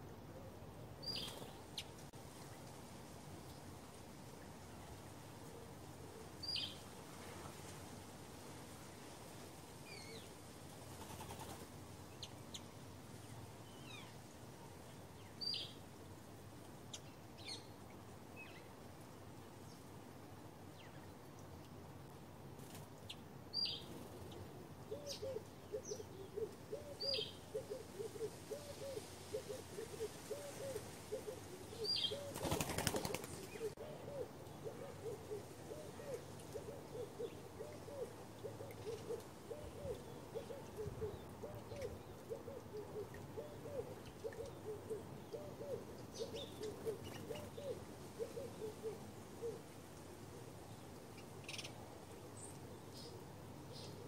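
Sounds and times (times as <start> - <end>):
small birds chirping: 1.0 - 2.0, 31.7 - 33.8
dove cooing: 24.9 - 49.6.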